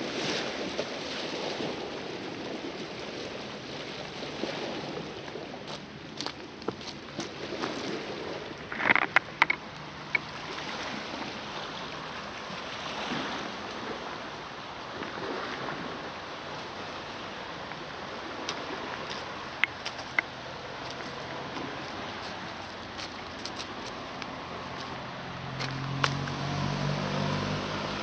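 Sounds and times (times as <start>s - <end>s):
waves lapping against rocks: 0.0s - 28.0s
sharp clicks and knocks: 8.7s - 10.3s.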